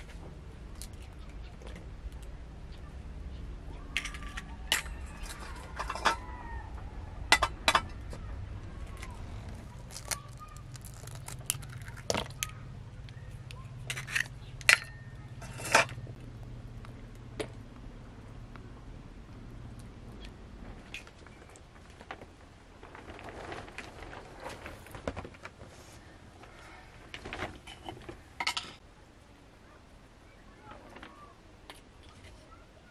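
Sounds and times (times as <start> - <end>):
low background rumble: 0.0 - 30.6
eggs cracking on bowl rim: 9.9 - 12.5.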